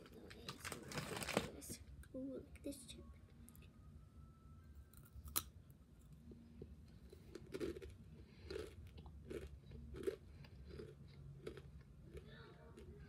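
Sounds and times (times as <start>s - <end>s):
chewing crunchy chip: 7.0s - 13.0s
tortilla chip bitten with crunch: 7.1s - 12.9s.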